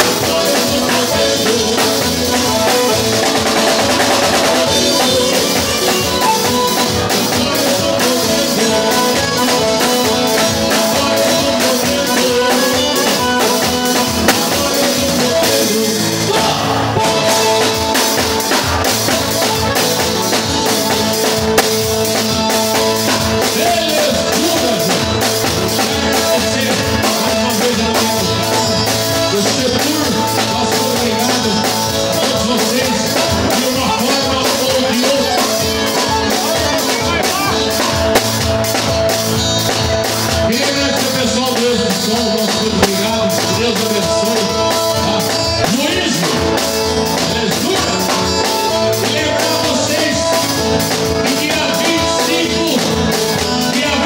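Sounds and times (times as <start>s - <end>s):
acoustic guitar: 0.0s - 54.0s
drum kit with cymbals: 0.0s - 54.0s.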